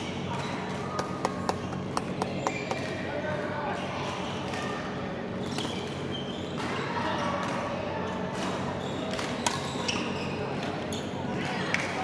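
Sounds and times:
shoes squeaking on court: 0:05.3 - 0:06.8, 0:08.1 - 0:11.2.

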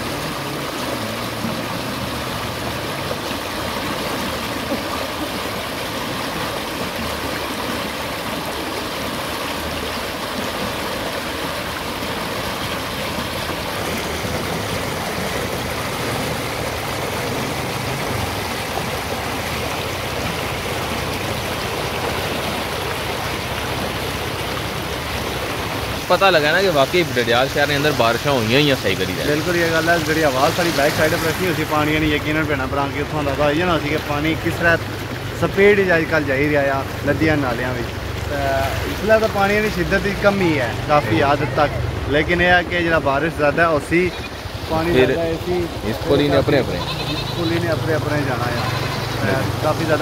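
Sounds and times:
floodwater rushing: 0:00.0 - 0:50.0.

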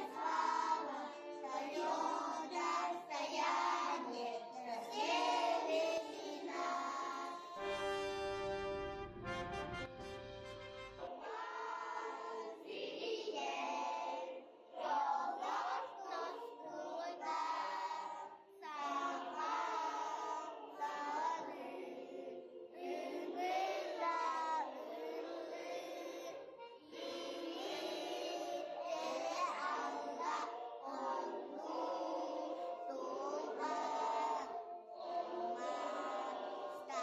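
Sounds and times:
children singing together: 0:00.0 - 0:08.8, 0:11.0 - 0:37.0
brass instrumental intro: 0:07.6 - 0:11.2.

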